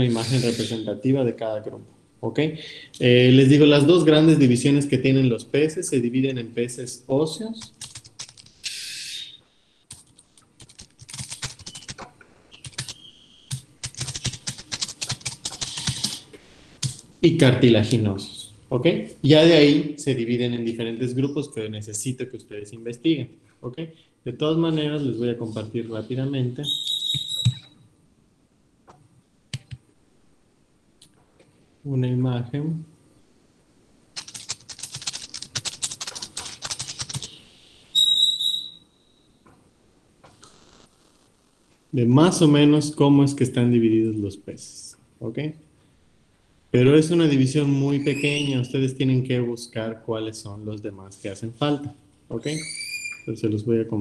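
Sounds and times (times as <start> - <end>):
typing on computer keyboard: 7.6 - 8.5, 9.9 - 16.2, 29.6 - 29.8, 34.2 - 37.4
high electronic beep: 26.7 - 27.8, 38.0 - 39.3.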